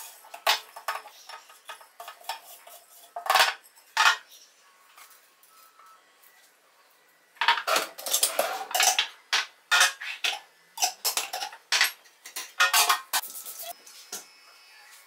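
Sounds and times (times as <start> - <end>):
jars and tins clinking on countertop: 0.3 - 4.3, 7.4 - 13.2.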